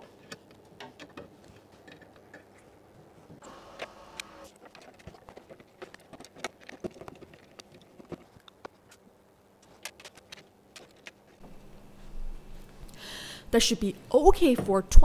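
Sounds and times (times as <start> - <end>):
small tools being handled: 4.5 - 11.4.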